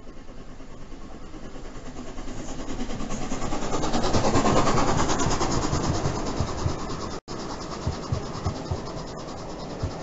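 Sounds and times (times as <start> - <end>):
steam locomotive passing: 0.0 - 10.0.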